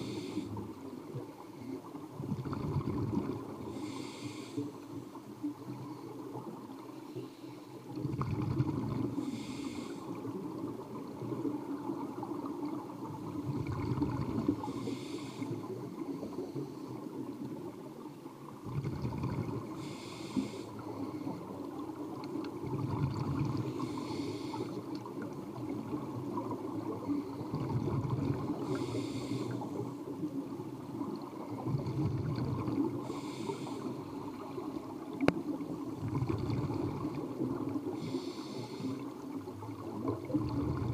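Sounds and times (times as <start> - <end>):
regulator breath hiss: 0.0 - 0.6, 3.7 - 5.0, 9.2 - 10.2, 14.6 - 16.8, 19.8 - 21.4, 23.8 - 24.8, 28.6 - 29.8, 33.0 - 34.3, 37.9 - 39.1
exhaled bubbles rumbling: 2.0 - 3.9, 7.9 - 9.3, 10.2 - 14.8, 17.2 - 20.0, 20.9 - 33.3, 33.9 - 38.1, 39.3 - 40.9.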